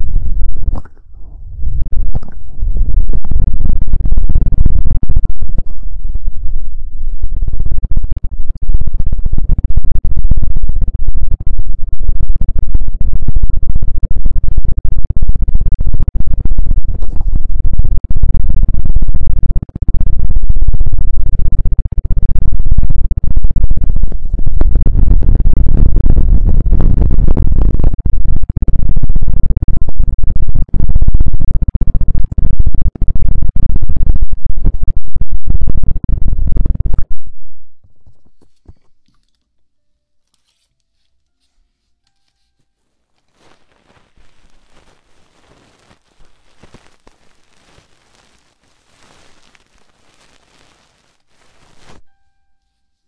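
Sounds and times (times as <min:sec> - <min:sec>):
scratching on microphone: 0:00.0 - 0:06.8, 0:16.8 - 0:17.6, 0:37.8 - 0:39.4, 0:40.3 - 0:52.0.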